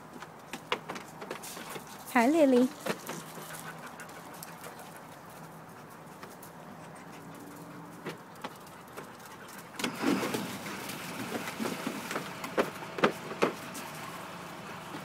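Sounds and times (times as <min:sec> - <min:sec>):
dogs splashing in water: 0:09.2 - 0:14.1
water sloshing: 0:09.7 - 0:13.0.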